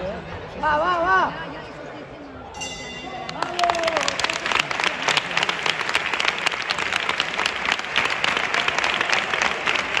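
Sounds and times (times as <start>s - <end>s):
crowd applauding: 3.2s - 10.0s.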